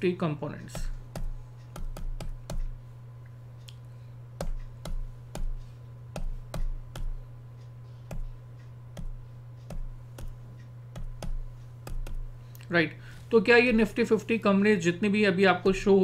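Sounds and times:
low electrical hum: 0.0 - 16.0
soft low thumps: 0.7 - 2.9, 4.3 - 12.4
keyboard typing clicks: 0.8 - 2.7, 8.1 - 12.3.

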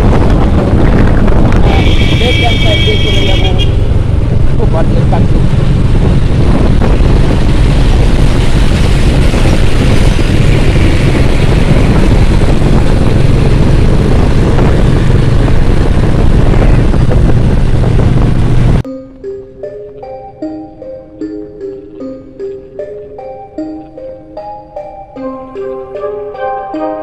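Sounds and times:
wind rush over microphone: 0.0 - 18.8
motorcycle engine drone: 0.0 - 25.6.

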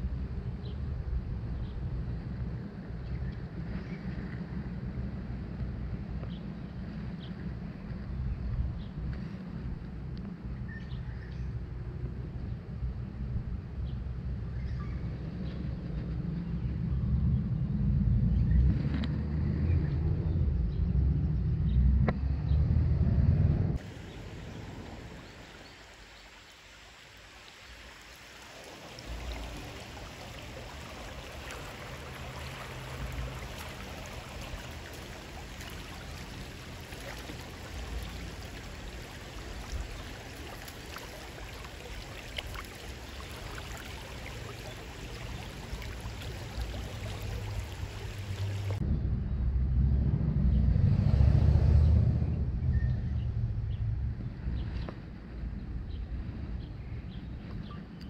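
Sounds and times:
low rumble: 15.0 - 23.8, 46.4 - 57.5
creek water rushing: 23.8 - 48.8.

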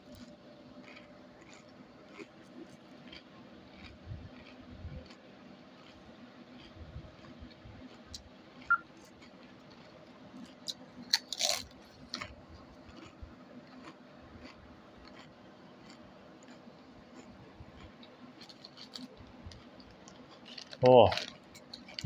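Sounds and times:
chips being crunched and chewed: 0.0 - 5.2, 5.8 - 22.0
low steady hum: 0.0 - 22.0
short beep: 8.7 - 8.9.

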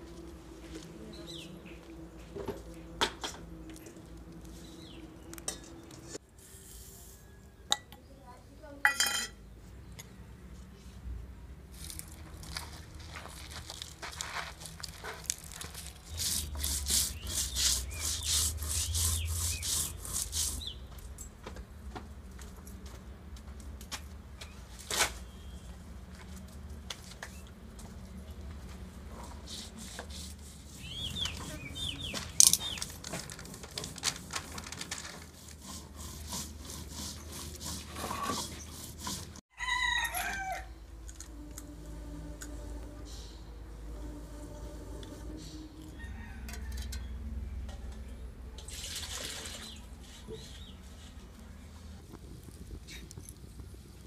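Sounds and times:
small birds chirping: 4.4 - 6.0, 16.2 - 21.0, 30.5 - 33.0, 49.5 - 51.2
stone roller scraping on grinding stone: 14.2 - 20.8, 29.4 - 39.4
rooster crowing: 39.5 - 42.6, 44.9 - 47.6.

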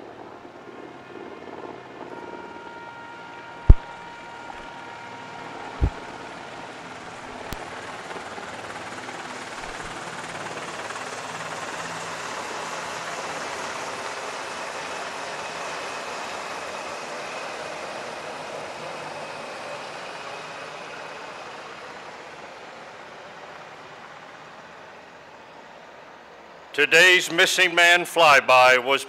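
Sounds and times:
helicopters flying overhead: 0.0 - 27.6.

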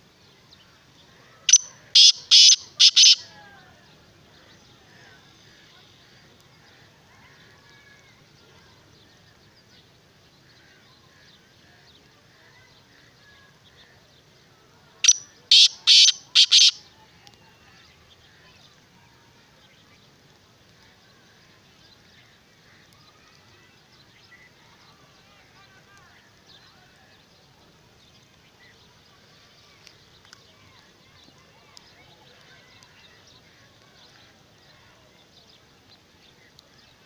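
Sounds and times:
faint birdsong: 0.0 - 37.0
francolin harsh grating call: 1.5 - 3.2, 15.0 - 16.8.

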